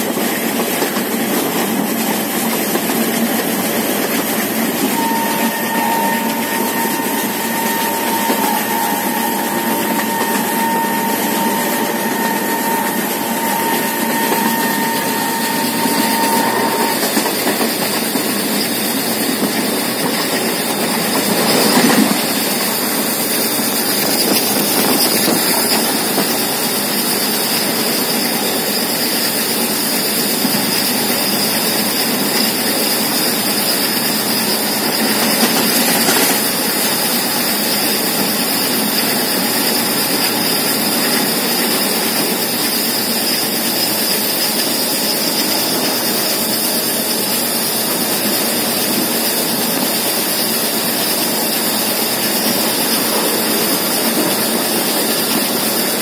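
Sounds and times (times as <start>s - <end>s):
train wheels on rails: 0.0s - 56.0s
thin steady whine: 2.3s - 56.0s.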